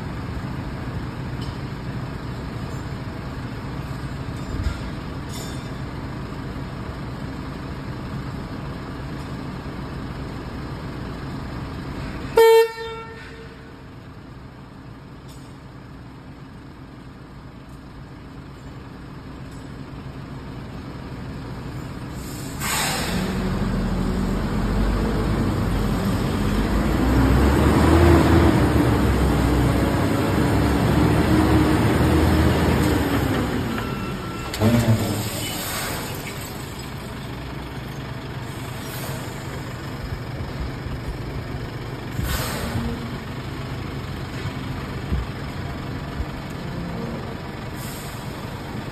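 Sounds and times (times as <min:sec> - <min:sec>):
truck diesel engine running: 0:00.0 - 0:48.9
vehicle horn toot: 0:12.3 - 0:13.8
short air hiss: 0:22.2 - 0:23.4, 0:42.2 - 0:42.8.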